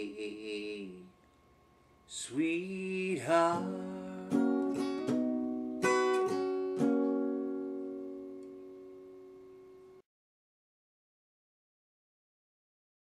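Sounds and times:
acoustic guitar playing: 0:02.4 - 0:10.0.

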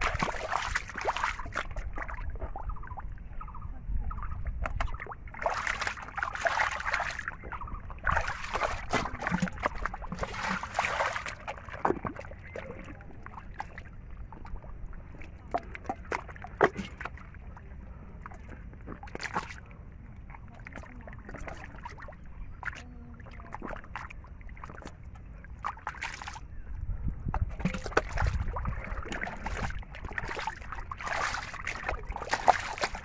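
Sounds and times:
muddy water splashing and sloshing: 0:00.0 - 0:33.0.

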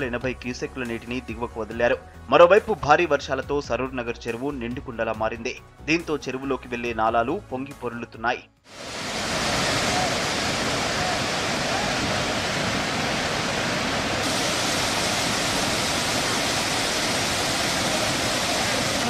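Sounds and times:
water rushing over a weir: 0:08.7 - 0:19.0.

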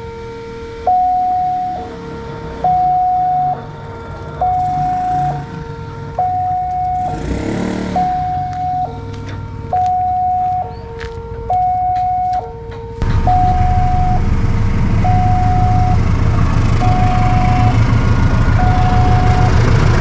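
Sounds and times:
electronic two-note crossing alarm: 0:00.0 - 0:20.0
low rumble: 0:13.0 - 0:20.0
rush of noise: 0:13.0 - 0:20.0.

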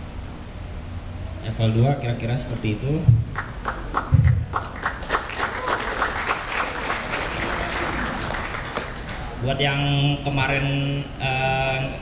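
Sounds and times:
audience clapping: 0:03.3 - 0:09.4.

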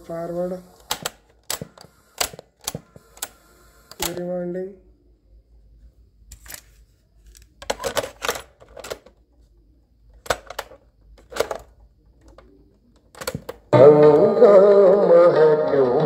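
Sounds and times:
cassette playing music: 0:13.4 - 0:16.0.

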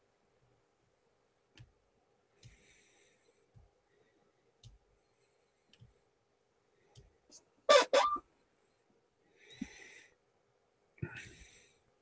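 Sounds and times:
soft breath: 0:02.3 - 0:07.4, 0:08.5 - 0:10.3, 0:11.0 - 0:12.0.

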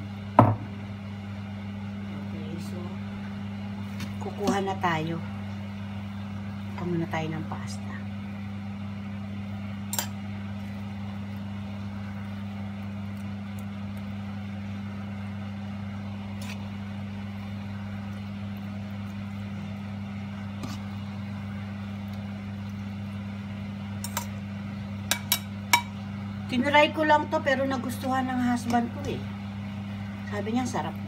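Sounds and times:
steady low hum: 0:00.0 - 0:31.0
metal fork clicking on pan: 0:25.1 - 0:25.9.

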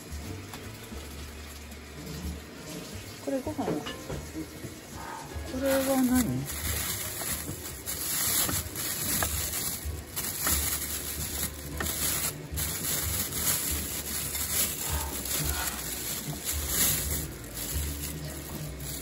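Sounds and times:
plastic bag rustling: 0:04.9 - 0:19.0.

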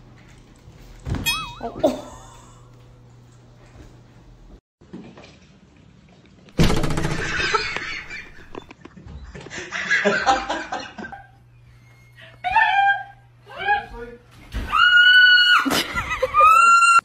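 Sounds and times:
people laughing: 0:07.2 - 0:08.6, 0:09.4 - 0:11.4.

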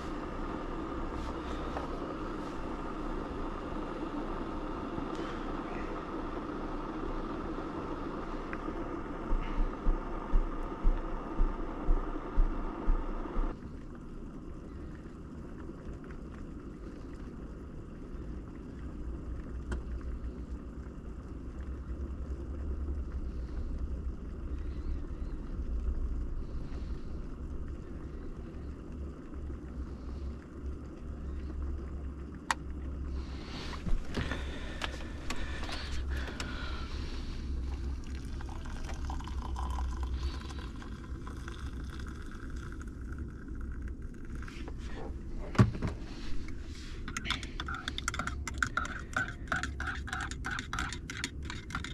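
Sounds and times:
truck engine rumbling: 0:44.5 - 0:51.9.

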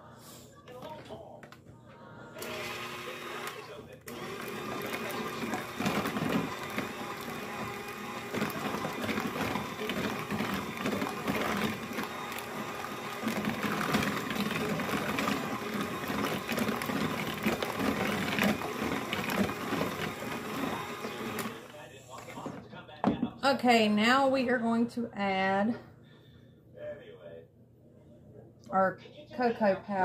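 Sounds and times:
electric hand mixer whirring: 0:02.4 - 0:22.6.

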